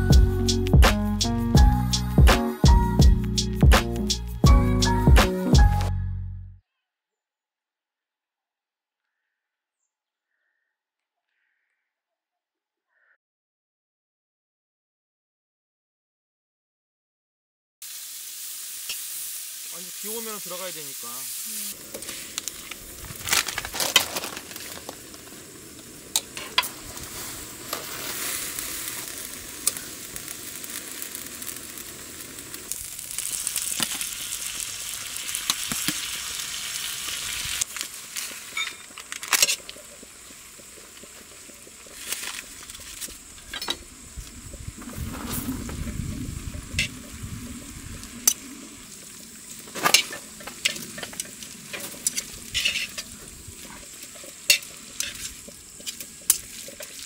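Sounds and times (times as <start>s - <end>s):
food sizzling on a griddle: 0.0s - 5.7s, 17.8s - 57.0s
metal utensils clicking on pan: 49.8s - 53.1s, 54.5s - 57.0s.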